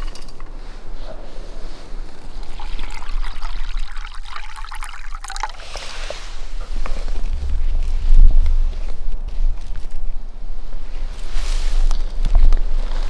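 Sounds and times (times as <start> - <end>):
water pouring into metal pot: 2.4 - 6.1.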